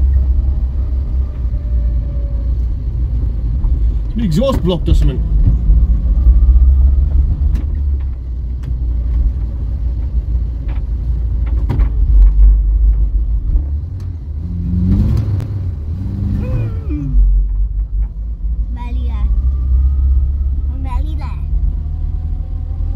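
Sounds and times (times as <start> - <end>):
car engine and road rumble: 0.0 - 22.9.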